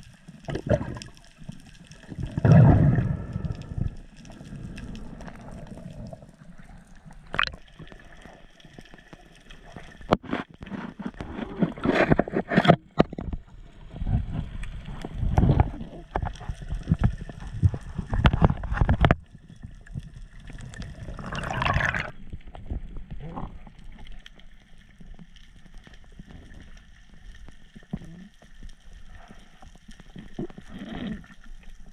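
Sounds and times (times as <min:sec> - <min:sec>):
burst of bubbles: 0:00.0 - 0:01.2, 0:02.0 - 0:08.1, 0:20.5 - 0:22.2
water rushing and gurgling: 0:00.0 - 0:10.1, 0:20.3 - 0:22.2.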